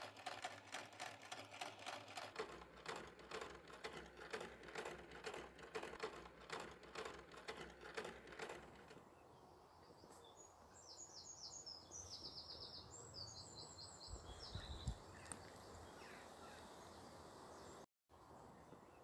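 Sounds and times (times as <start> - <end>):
songbird chirping: 8.9 - 19.0.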